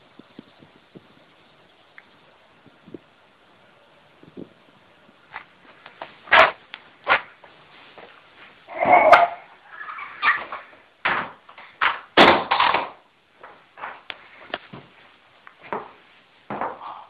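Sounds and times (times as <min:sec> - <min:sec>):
irregular knocks and bumps: 0:15.6 - 0:16.8.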